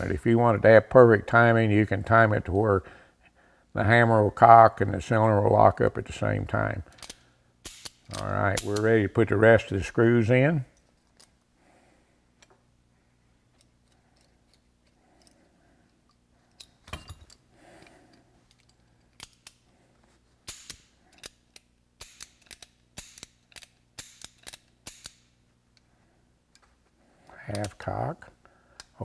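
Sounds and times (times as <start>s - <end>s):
revolver parts clicking: 6.8s - 9.0s, 10.7s - 11.5s, 13.5s - 19.7s, 20.4s - 25.9s.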